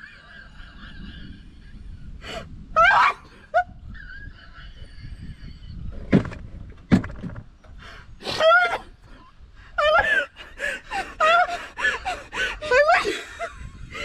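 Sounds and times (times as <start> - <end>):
women shrieking with laughter: 2.8 - 5.7, 9.8 - 14.0.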